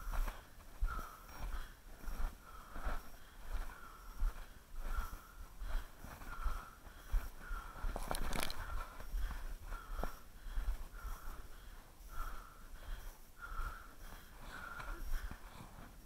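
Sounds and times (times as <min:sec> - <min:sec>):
footsteps crunching in snow: 0:00.0 - 0:09.1.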